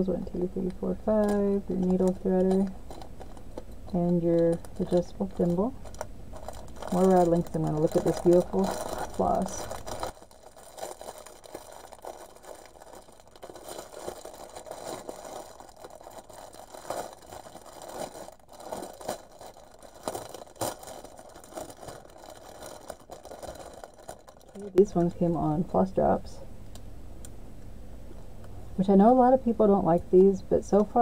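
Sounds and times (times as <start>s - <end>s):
plastic bag crinkling: 0.0s - 25.8s.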